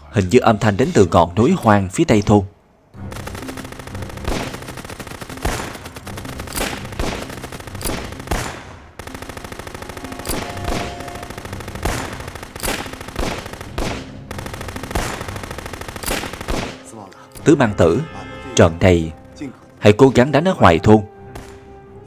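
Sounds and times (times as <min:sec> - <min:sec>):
rapid popping and crackling: 0:03.0 - 0:17.6, 0:21.3 - 0:21.7.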